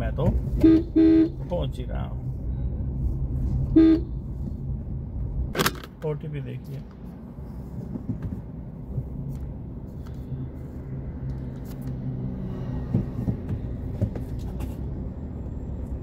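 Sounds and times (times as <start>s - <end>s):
car engine rumble from inside cabin: 0.0s - 5.6s.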